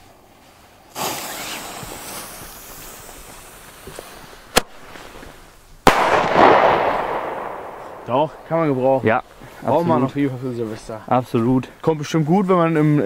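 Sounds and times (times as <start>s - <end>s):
firecracker fuse hissing: 0.0s - 8.0s
firecracker cracking: 0.8s - 9.2s.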